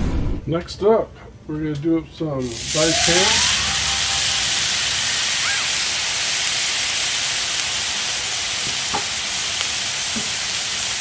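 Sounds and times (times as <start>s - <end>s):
ham sizzling on griddle: 2.4s - 11.0s.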